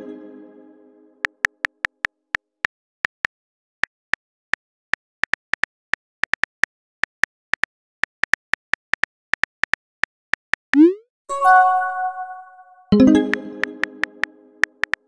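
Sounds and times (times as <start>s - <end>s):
notification chime: 10.8s - 13.8s.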